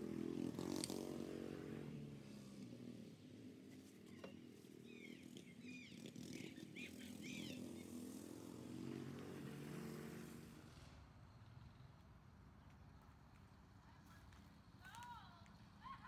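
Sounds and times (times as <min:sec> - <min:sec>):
faint bird chirping: 0:04.1 - 0:07.9.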